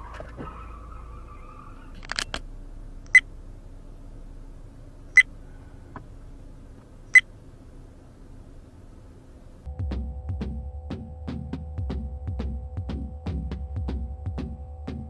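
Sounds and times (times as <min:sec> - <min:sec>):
faint car hum: 0:00.0 - 0:10.9
sharp high clicks: 0:02.0 - 0:02.4, 0:03.0 - 0:03.3.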